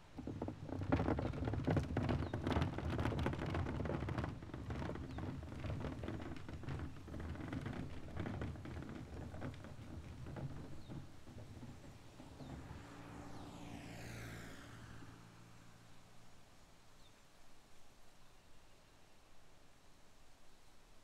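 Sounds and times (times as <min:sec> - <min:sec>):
wheelie bin rolling on tarmac: 0:00.0 - 0:16.1.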